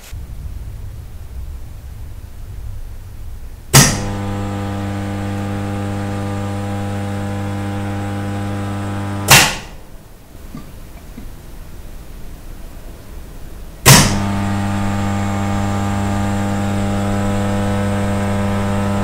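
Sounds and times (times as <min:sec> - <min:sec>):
low rumble: 0:00.0 - 0:09.2
kiln elements buzzing hum: 0:00.0 - 0:19.0.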